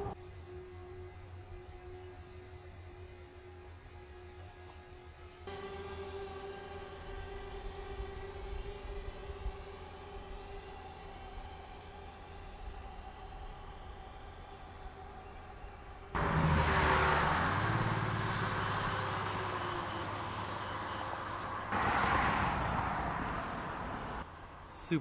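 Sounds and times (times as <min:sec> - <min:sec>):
vehicle engine hum and tyre rush: 0:00.0 - 0:24.8
burst of road noise: 0:16.1 - 0:24.3.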